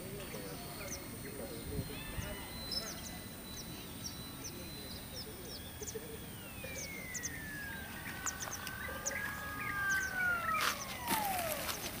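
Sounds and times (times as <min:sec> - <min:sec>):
small birds chirping: 0:00.0 - 0:12.0
model plane motor whine: 0:06.6 - 0:12.0.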